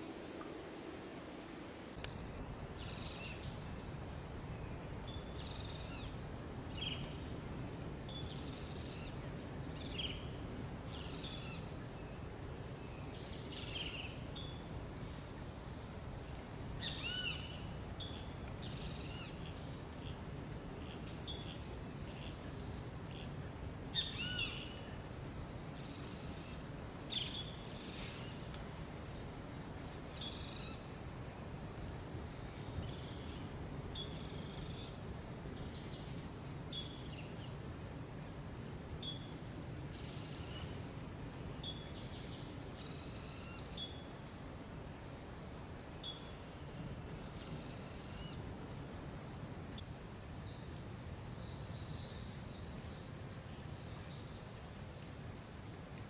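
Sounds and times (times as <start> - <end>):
high-pitched insect buzzing: 0.0 - 2.4.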